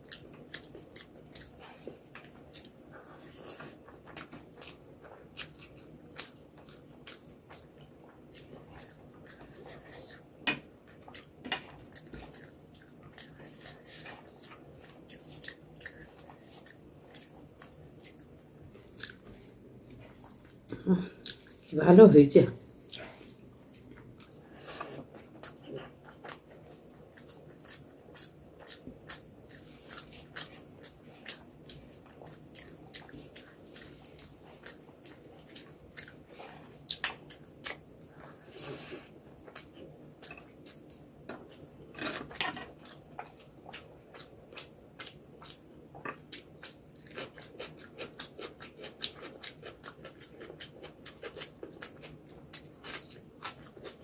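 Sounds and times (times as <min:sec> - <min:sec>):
wet chewing and lip smacks: 0:42.8 - 0:54.0.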